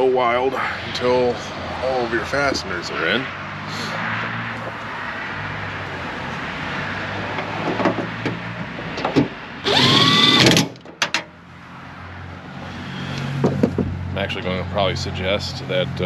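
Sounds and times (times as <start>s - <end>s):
cordless power driver whining: 9.6s - 10.7s.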